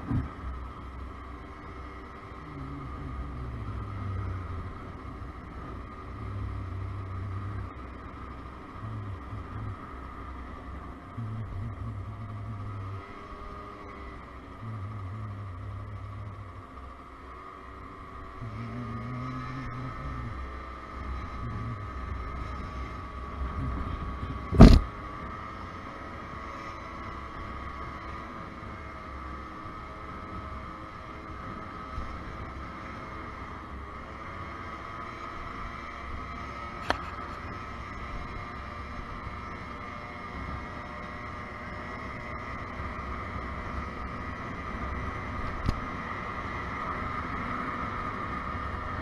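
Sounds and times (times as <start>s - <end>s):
scooter engine running: 0.0s - 49.0s
loud thump: 24.5s - 24.9s.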